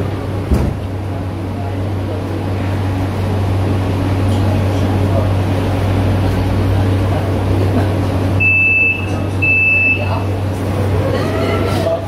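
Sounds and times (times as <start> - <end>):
train rushing noise: 0.0 - 8.4.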